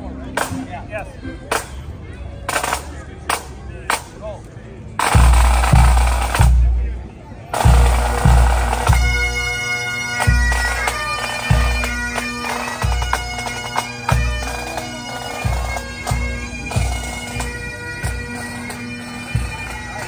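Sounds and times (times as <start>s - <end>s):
bagpipes droning: 7.6s - 20.0s.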